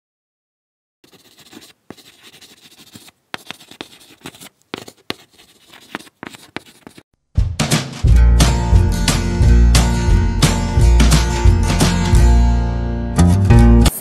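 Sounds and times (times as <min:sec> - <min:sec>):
chalk scratching on chalkboard: 0:01.0 - 0:07.0.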